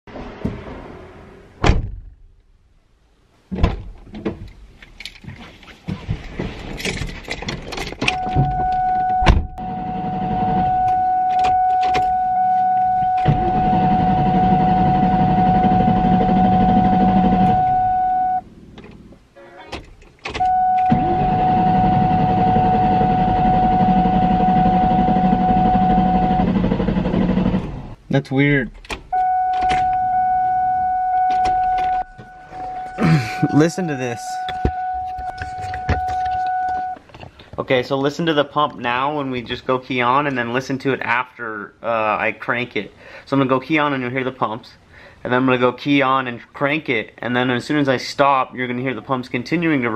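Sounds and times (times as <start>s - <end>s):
clicks and knocks from door and key: 6.8s - 8.6s
car starter cranking with whine: 8.1s - 28.0s.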